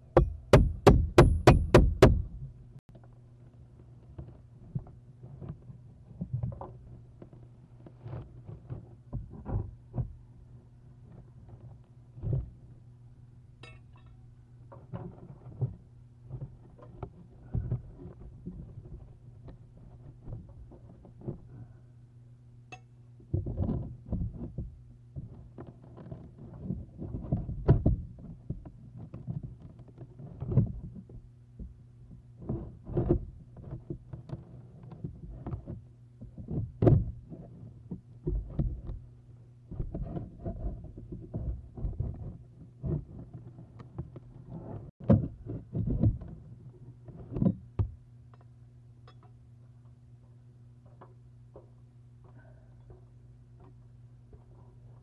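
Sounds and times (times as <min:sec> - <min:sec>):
low electrical hum: 0:00.0 - 0:55.0
thumps and scrapes on nest box: 0:31.6 - 0:39.0, 0:39.7 - 0:46.4.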